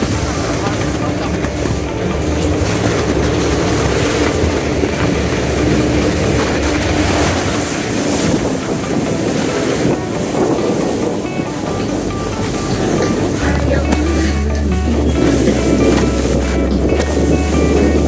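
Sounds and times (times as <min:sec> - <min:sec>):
low rumble: 0:00.0 - 0:18.0
snowboards scraping on packed snow: 0:00.0 - 0:18.0.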